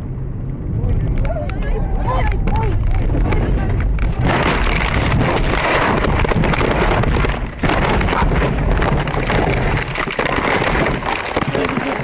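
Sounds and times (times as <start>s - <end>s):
car crash with knocks and clatter: 4.1s - 12.0s.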